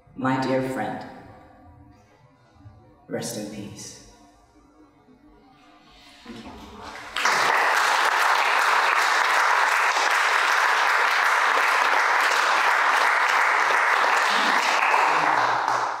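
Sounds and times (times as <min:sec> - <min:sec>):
audience applauding: 0:06.4 - 0:16.0.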